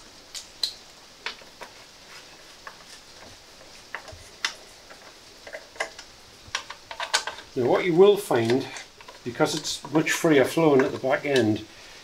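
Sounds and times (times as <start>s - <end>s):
light clicks on metal parts: 2.6s - 11.6s.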